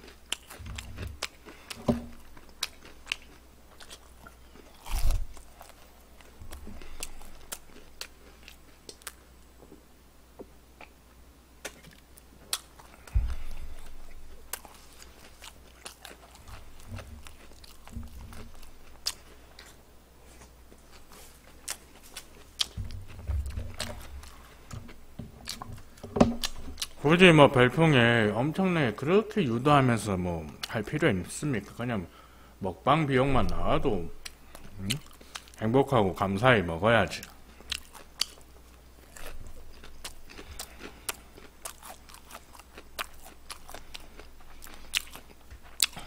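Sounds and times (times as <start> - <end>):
person chewing crispy chicken: 0.0 - 9.3, 11.6 - 27.0, 34.2 - 35.6, 37.2 - 46.0
low thumps: 13.1 - 14.4, 22.7 - 26.8.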